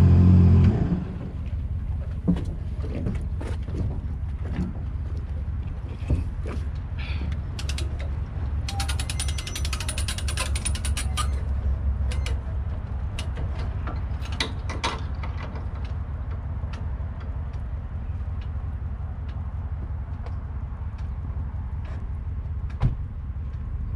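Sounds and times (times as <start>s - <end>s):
winch ratchet clicking: 7.6s - 11.5s.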